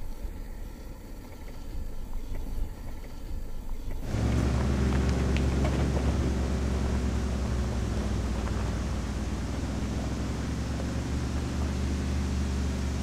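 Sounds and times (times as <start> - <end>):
faint clicks: 1.3 - 6.1
engine running at low revs: 4.0 - 13.0.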